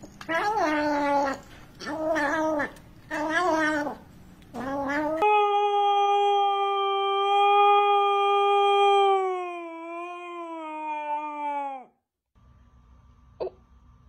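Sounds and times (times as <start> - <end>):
dog howling: 4.6 - 12.0.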